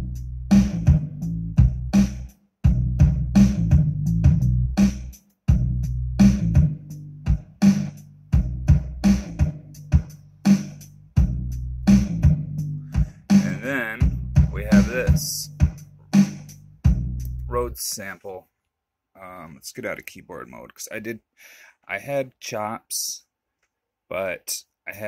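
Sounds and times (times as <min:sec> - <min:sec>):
hip-hop drum-machine beat: 0:00.0 - 0:17.8
sustained bass line: 0:00.0 - 0:17.8.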